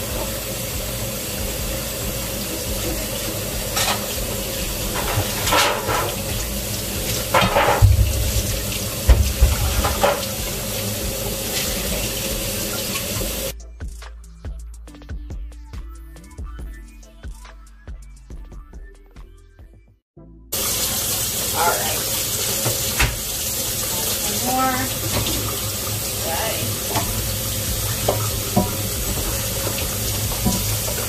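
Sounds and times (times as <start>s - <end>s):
tap running into sink: 0.0s - 13.5s, 20.6s - 31.0s
dishes clattering: 2.8s - 6.4s, 7.0s - 10.5s, 27.8s - 31.0s.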